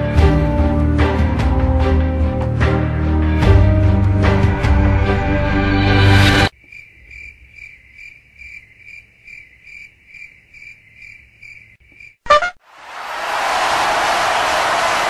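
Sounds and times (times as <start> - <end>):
crickets chirping: 6.5 - 12.2.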